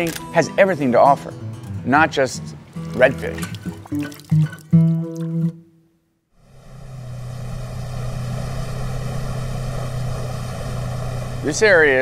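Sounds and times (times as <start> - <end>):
boat engine running: 6.4 - 12.0.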